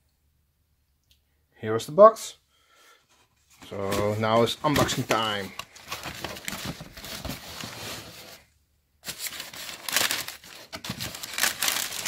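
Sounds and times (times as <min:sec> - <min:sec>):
tissue paper crinkling: 0:03.6 - 0:08.4, 0:09.0 - 0:12.0.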